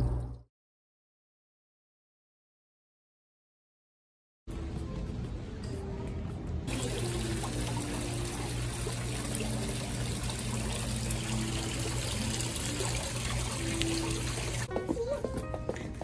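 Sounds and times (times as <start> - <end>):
small waterfall splashing into pond: 6.7 - 14.7.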